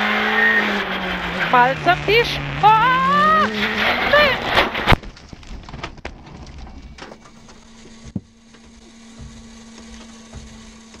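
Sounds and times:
car crunching through brush: 0:00.0 - 0:11.0
steady low hum: 0:04.3 - 0:11.0.

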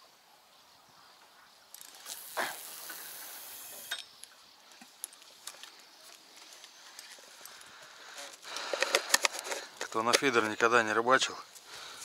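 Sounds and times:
fishing line hissing off reel: 0:01.7 - 0:04.2.

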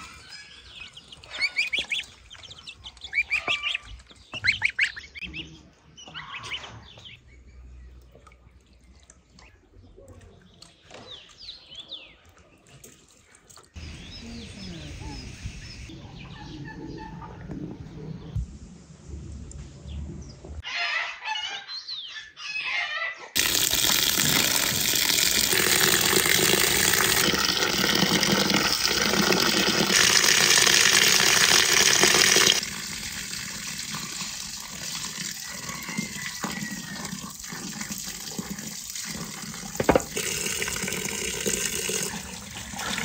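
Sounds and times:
chicken clucking: 0:15.9 - 0:18.4
water running from a tap: 0:23.4 - 0:43.0.

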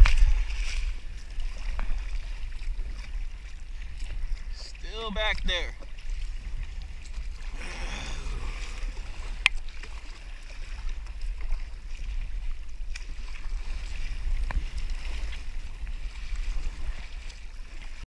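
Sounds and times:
wind on microphone: 0:00.0 - 0:05.0, 0:05.7 - 0:18.0
water splashing beside kayak: 0:00.0 - 0:18.0.

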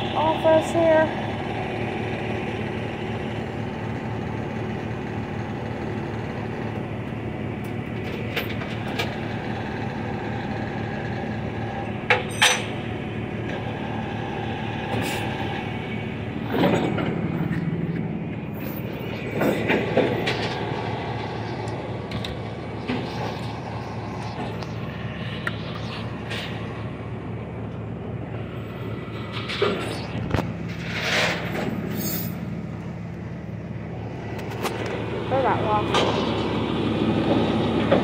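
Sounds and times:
engine humming: 0:00.0 - 0:38.0.

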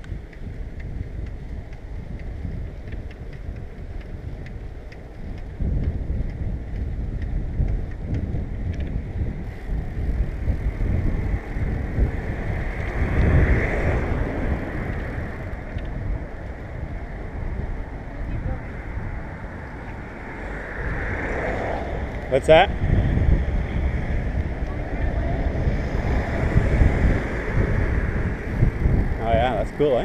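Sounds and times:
light ticks: 0:00.0 - 0:09.0
road rumble: 0:00.0 - 0:30.0
wind buffeting microphone: 0:00.0 - 0:30.0.

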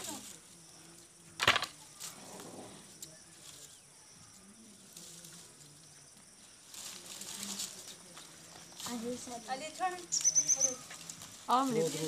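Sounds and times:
brushwood rustling: 0:04.8 - 0:12.0.

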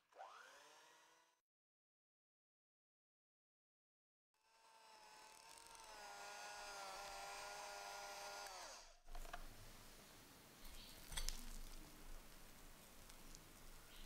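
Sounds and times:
electric hand mixer whine: 0:00.0 - 0:01.4, 0:04.4 - 0:09.0.

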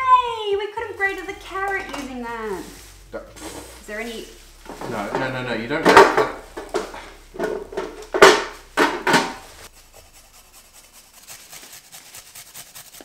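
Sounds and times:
carrot grating rasps: 0:04.5 - 0:13.0.

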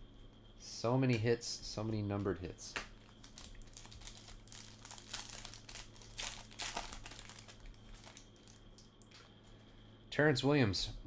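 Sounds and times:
faint steady hum: 0:00.0 - 0:11.0
plastic wrapper crinkling: 0:03.0 - 0:09.2.

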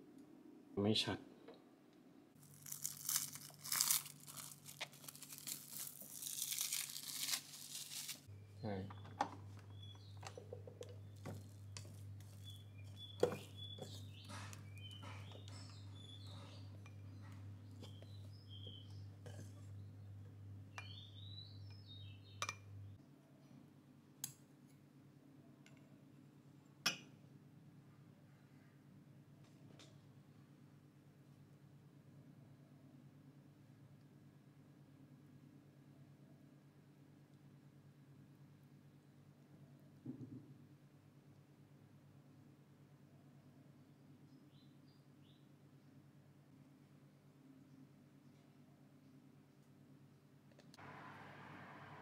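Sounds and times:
crinkling and rustling: 0:02.4 - 0:08.3.

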